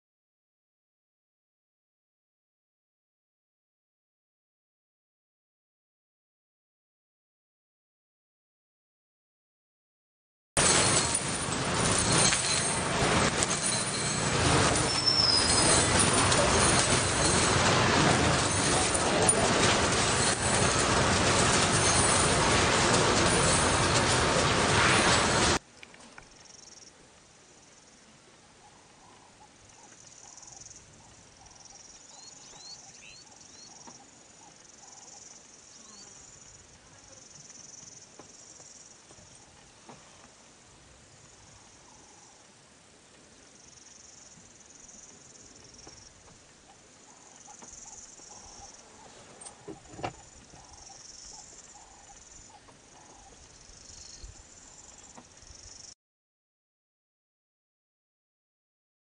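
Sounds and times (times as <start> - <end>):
traffic noise: 10.6 - 25.8
insects chirring: 26.3 - 28.0, 29.0 - 39.6, 43.4 - 55.9.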